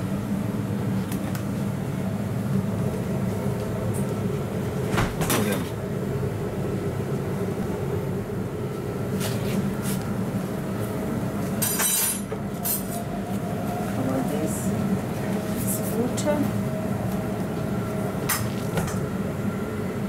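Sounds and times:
kitchen machinery humming: 0:00.0 - 0:20.0.

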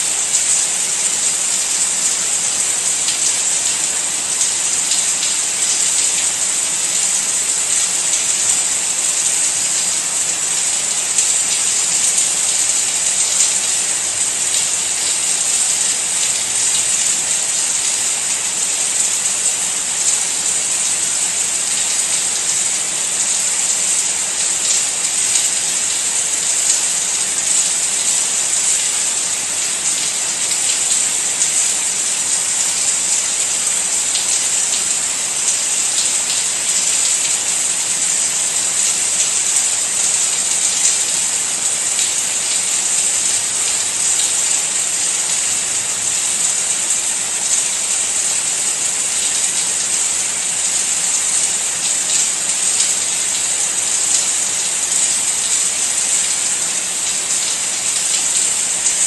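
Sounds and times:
patter of raindrops: 0:00.0 - 0:59.0
steady rain: 0:00.0 - 0:59.0.

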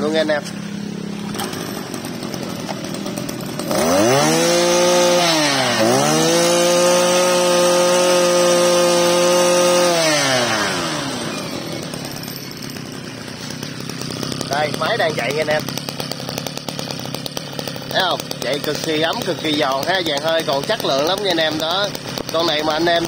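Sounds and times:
brush cutter engine revving: 0:00.0 - 0:23.0.

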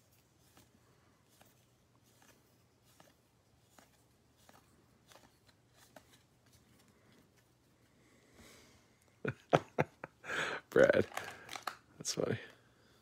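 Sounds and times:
cards flipping with soft clicks: 0:00.0 - 0:07.9, 0:10.9 - 0:12.6.

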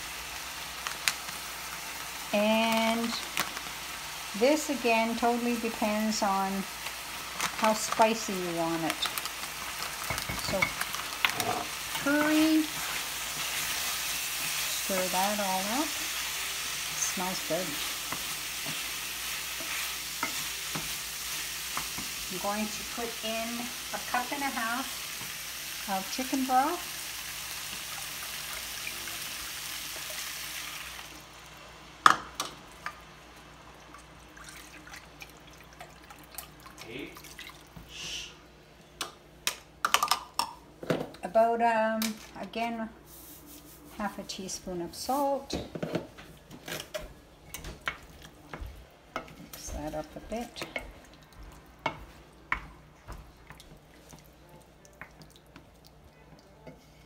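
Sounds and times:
chicken sizzling in frying pan: 0:00.0 - 0:34.4.

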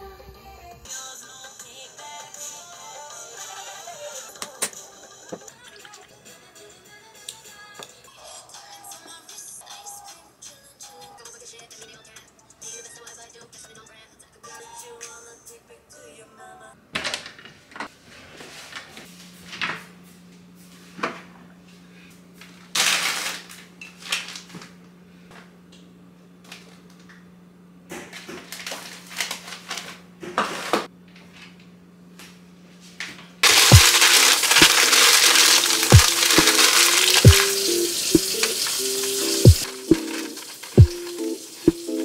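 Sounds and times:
parchment paper crinkling: 0:22.4 - 0:24.7, 0:28.1 - 0:30.9, 0:33.4 - 0:42.0.

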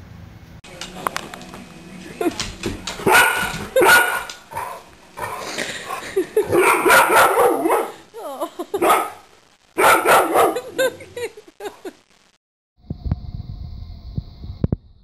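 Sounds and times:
dog barking: 0:03.0 - 0:05.5, 0:06.4 - 0:08.0, 0:08.8 - 0:09.2, 0:09.8 - 0:10.7.

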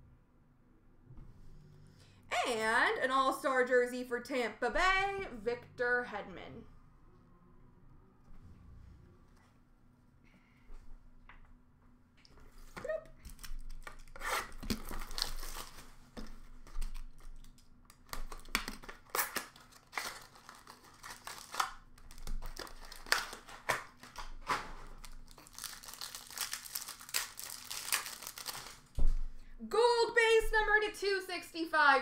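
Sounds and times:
foil wrappers crinkling and tearing: 0:13.2 - 0:29.2.

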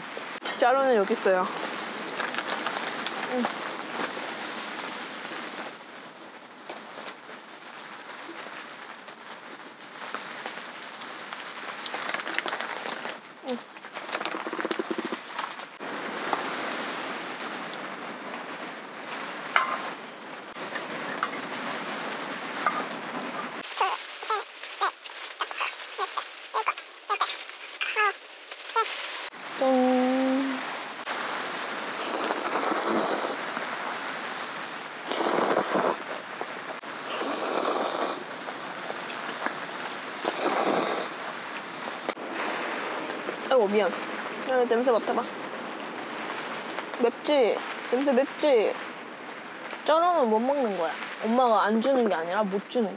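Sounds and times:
heavy rain on tent fabric: 0:00.0 - 0:52.9
person slurping noodles: 0:14.1 - 0:15.2, 0:32.0 - 0:33.4, 0:35.1 - 0:36.0, 0:37.1 - 0:38.2, 0:40.2 - 0:41.1.

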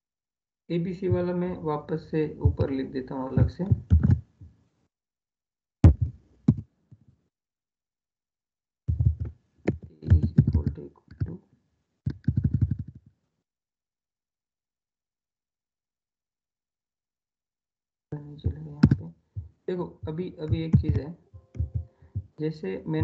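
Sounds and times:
keyboard typing: 0:03.4 - 0:04.2, 0:08.9 - 0:11.4, 0:12.1 - 0:13.0, 0:20.0 - 0:22.3.

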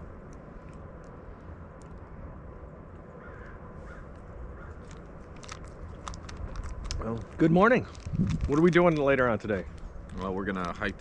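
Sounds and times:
steady low rumble: 0:00.0 - 0:11.0
faint bird calls: 0:03.0 - 0:05.0.

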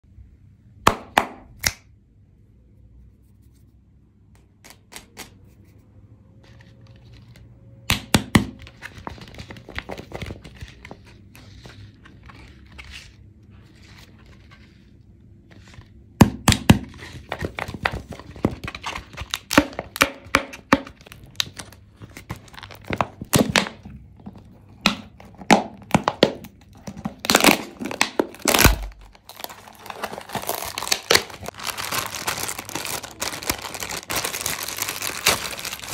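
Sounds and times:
wrapper crinkling and tearing: 0:25.8 - 0:35.9.

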